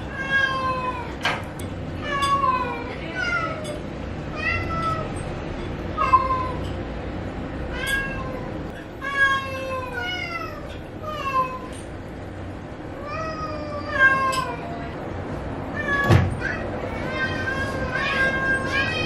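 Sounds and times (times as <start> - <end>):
cat meowing: 0.0 - 1.2, 2.0 - 5.2, 6.0 - 6.8, 7.7 - 11.9, 13.0 - 15.0, 15.7 - 19.0.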